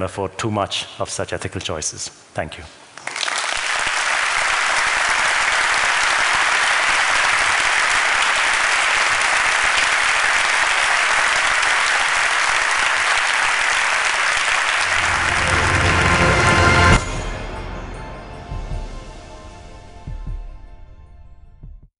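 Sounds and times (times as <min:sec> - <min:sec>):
large audience applauding: 0:03.0 - 0:17.0.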